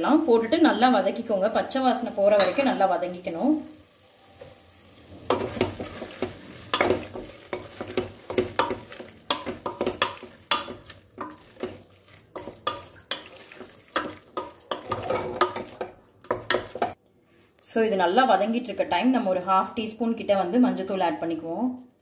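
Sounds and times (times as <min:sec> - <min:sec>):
masala sizzling in oil: 0:00.0 - 0:17.0
spoon scraping a metal pot: 0:05.2 - 0:17.0.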